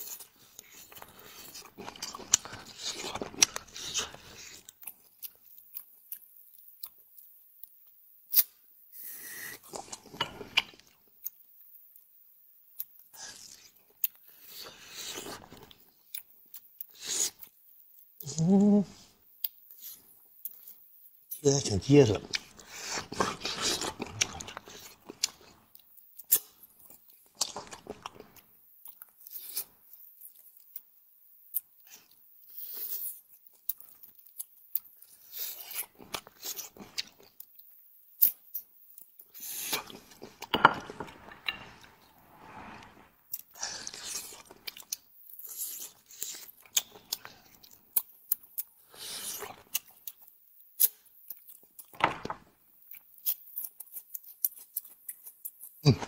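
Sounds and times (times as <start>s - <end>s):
close-miked chewing and crunching: 0.0s - 8.6s, 9.4s - 42.2s, 42.9s - 56.0s
person humming: 18.2s - 19.0s.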